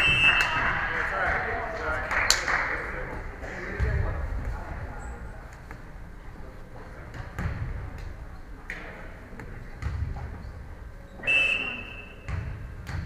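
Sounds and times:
referee whistle blast: 0.0 - 0.5, 11.2 - 12.3.

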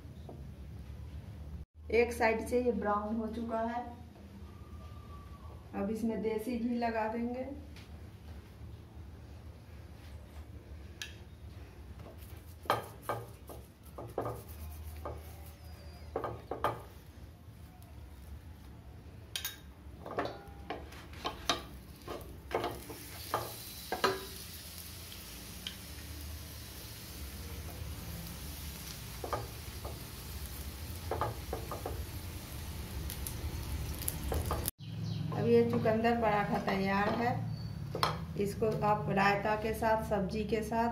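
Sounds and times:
ghee sizzling on a griddle: 12.1 - 18.7, 20.4 - 34.7
spoon scraping a griddle: 12.2 - 16.9
steel spoon scraping and tapping: 12.6 - 15.4, 19.3 - 24.4.

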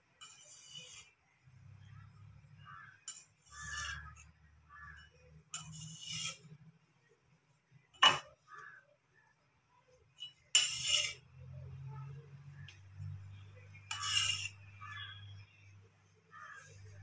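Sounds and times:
knife scraping stone countertop: 0.2 - 1.2, 2.7 - 6.6, 10.2 - 11.3, 13.5 - 15.7.

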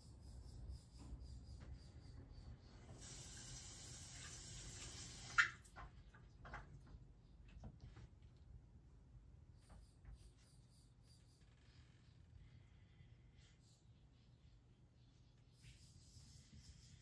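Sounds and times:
running water hissing: 3.0 - 5.6.

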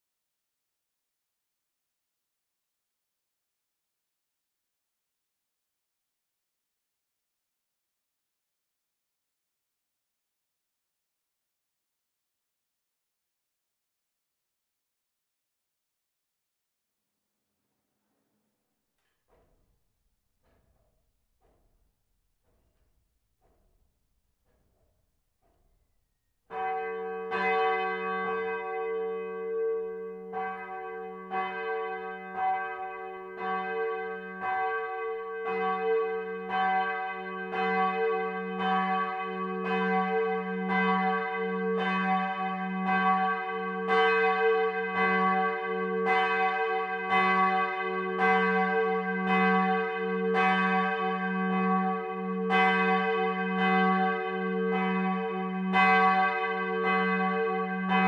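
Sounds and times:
church bell ringing: 26.5 - 58.0.

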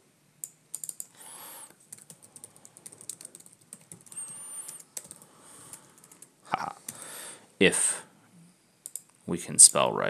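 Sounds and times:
computer keyboard typing: 0.4 - 7.0, 8.8 - 9.9.

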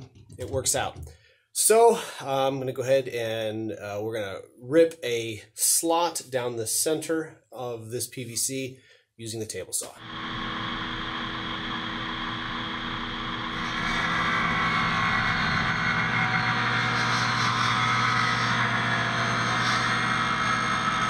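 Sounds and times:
table saw cutting plastic pipe: 10.0 - 21.0.

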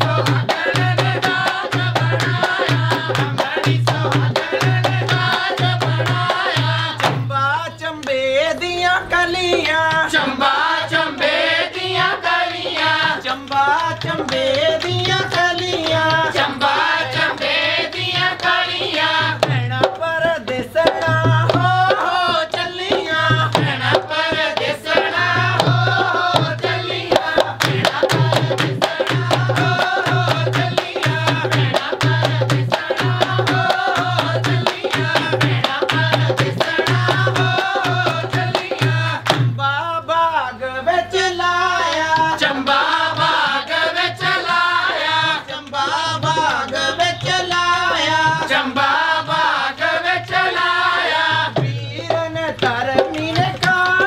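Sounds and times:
hand drum beat: 0.0 - 7.3, 11.9 - 39.6, 50.3 - 54.0
women singing folk song: 0.0 - 7.8, 8.4 - 39.4, 40.7 - 54.0
rhythmic handclaps: 0.0 - 39.9, 41.1 - 54.0.

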